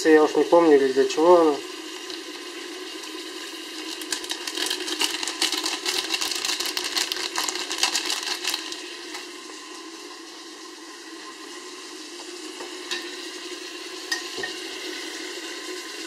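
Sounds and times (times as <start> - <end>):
meat and vegetables frying: 0.0 - 16.0
plastic packet crinkling: 3.8 - 9.3.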